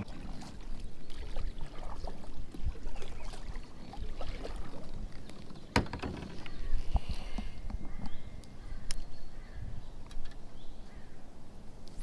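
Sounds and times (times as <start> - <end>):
kayak hull moving through water: 0.0 - 8.8.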